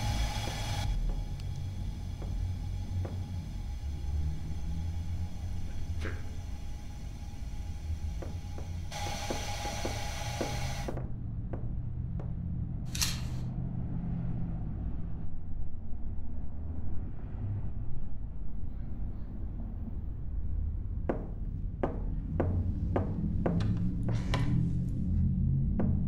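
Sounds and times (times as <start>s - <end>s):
low rumbling hum: 0.0s - 26.0s
sharp knocks: 21.1s - 24.5s.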